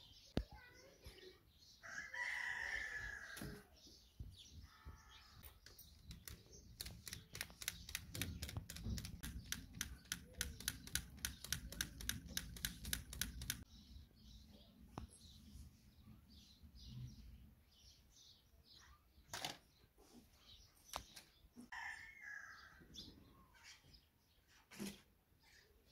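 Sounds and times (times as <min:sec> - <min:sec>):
plastic fan clacking: 0:05.6 - 0:13.6.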